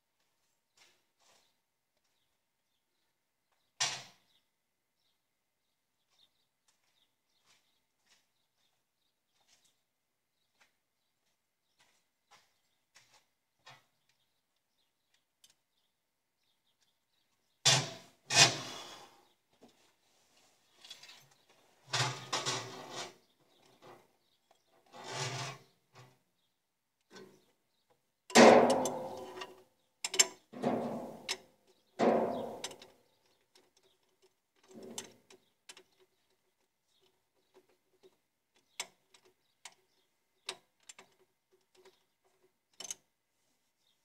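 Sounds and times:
hand tools knocking and rattling: 28.3 - 29.5, 32.0 - 32.9.

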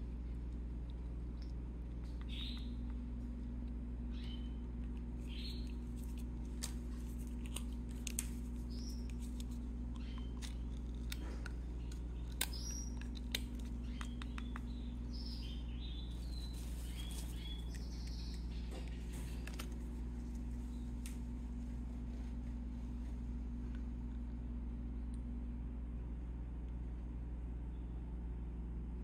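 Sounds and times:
steady low hum: 0.0 - 29.0
baby birds chirping: 2.2 - 2.9, 5.2 - 5.9, 8.6 - 9.2, 9.8 - 10.7, 11.6 - 19.6.

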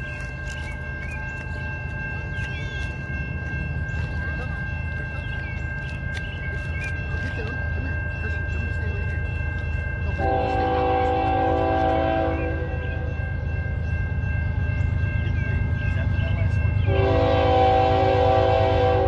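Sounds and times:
locomotive engines rumbling: 0.0 - 19.0
train air horn blast: 10.2 - 12.8, 16.9 - 19.0.

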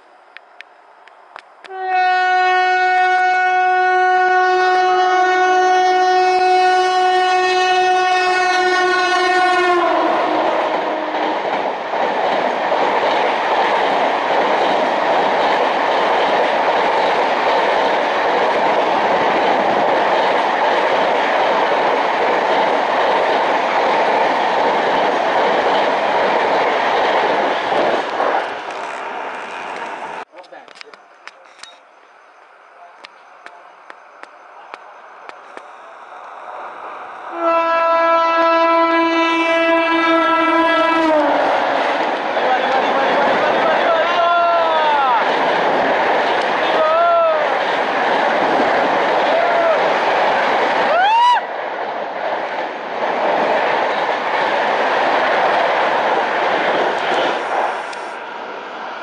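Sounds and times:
train horn blast: 1.7 - 11.2, 37.3 - 41.5.

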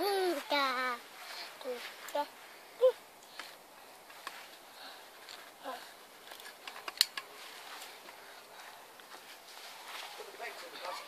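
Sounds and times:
faint background hiss: 0.0 - 11.0.

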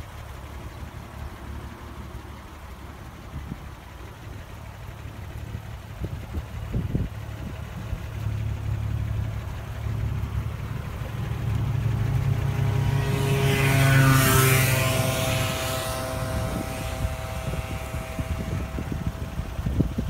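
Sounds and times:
steady low hum: 0.0 - 20.0
vehicle passing by: 8.5 - 20.0.

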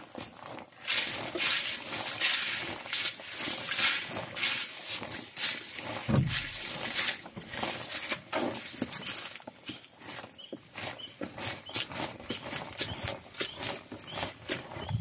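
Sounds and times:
footsteps through fallen leaves: 0.0 - 15.0
dull low thump: 6.1 - 6.7.

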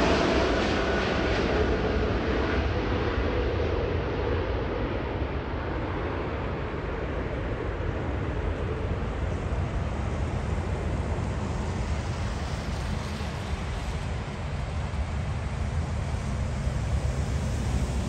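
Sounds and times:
jet engines rumbling: 0.0 - 18.0.

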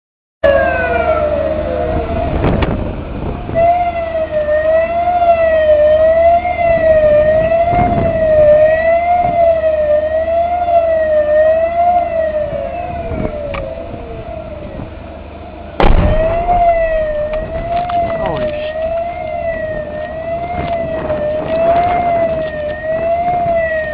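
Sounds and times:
warbling alarm siren: 0.4 - 23.9
loud bang: 15.8 - 18.8.

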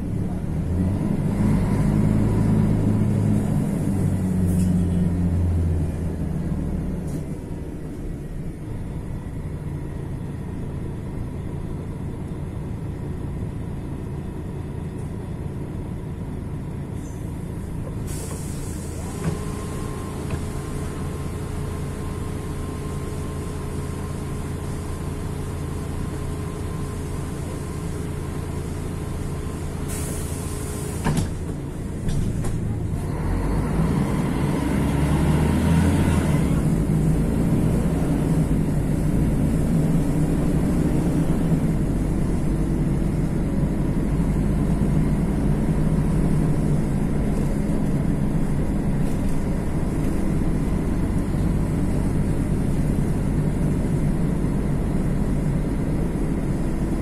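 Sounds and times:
diesel bus engine running: 0.0 - 57.0
air hiss: 18.0 - 19.3, 29.9 - 31.2.

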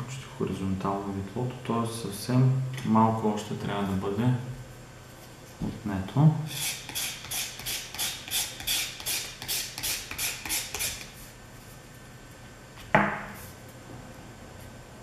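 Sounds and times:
scratchy sanding strokes: 6.5 - 11.1.

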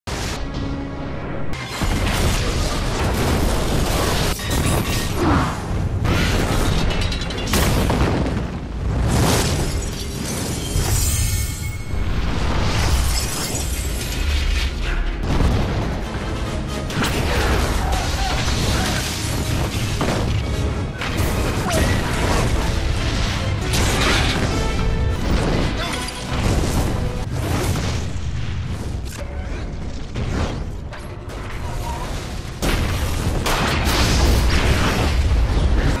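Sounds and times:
debris crashing: 1.6 - 16.3, 16.9 - 29.0
rushing fire: 1.6 - 36.0
deep rumble of explosions: 1.8 - 10.5, 14.6 - 36.0
big explosion blast: 7.6 - 9.7.

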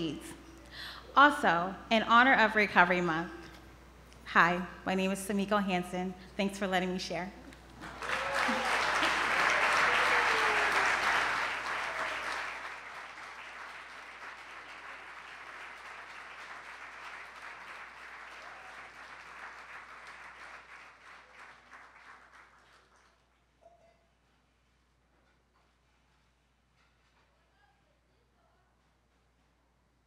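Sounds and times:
audience applauding: 7.8 - 23.2.

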